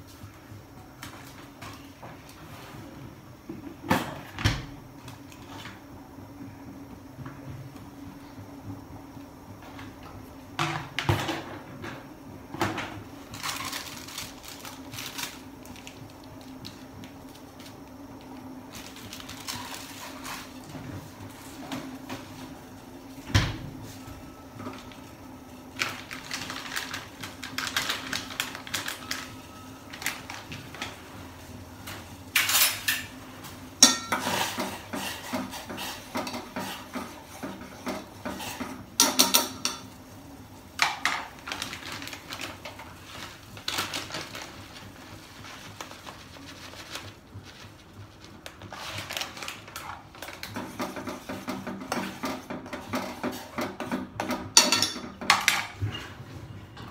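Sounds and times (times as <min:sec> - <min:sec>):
utensils and dishes clinking: 0:33.8 - 0:40.0, 0:49.8 - 0:56.9.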